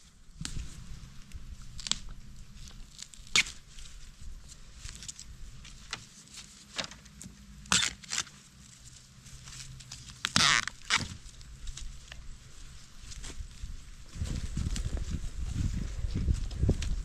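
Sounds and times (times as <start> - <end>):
dry leaves crackling: 0.5 - 6.8, 7.8 - 17.0
bamboo stems snapping: 1.7 - 3.7, 7.7 - 8.3, 9.8 - 12.2.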